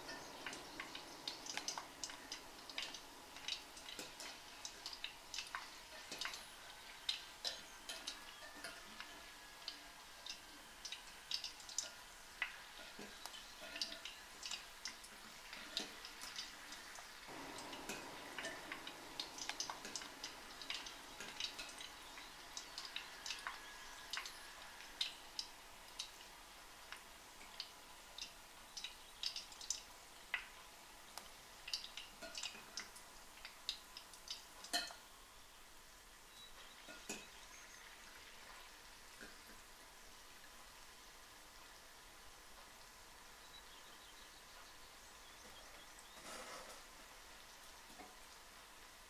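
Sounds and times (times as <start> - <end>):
oil crackling and popping: 0.0 - 35.2, 36.3 - 40.5, 45.5 - 49.0
oil sizzling: 0.0 - 49.0.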